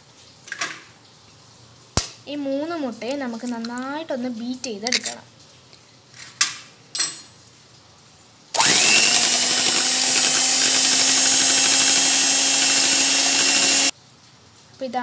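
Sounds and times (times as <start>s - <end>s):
electric hand mixer whirring: 8.6s - 13.9s.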